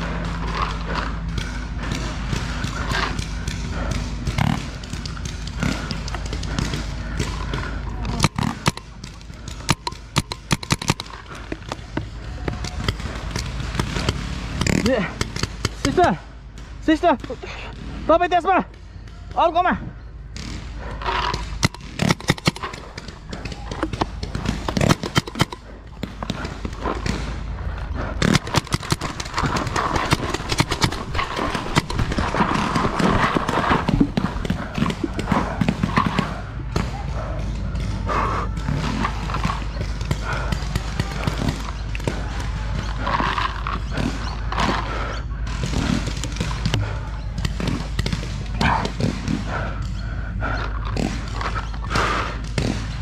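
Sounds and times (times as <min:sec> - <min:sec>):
paintball markers firing: 0:00.0 - 0:18.0, 0:20.2 - 0:53.0
distant shouting: 0:22.6 - 0:24.9, 0:25.5 - 0:53.0.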